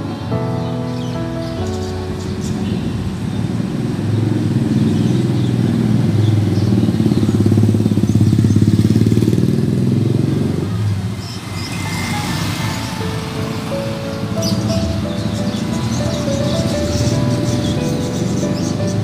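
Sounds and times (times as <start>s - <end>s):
motorcycle passing by: 1.6s - 19.0s.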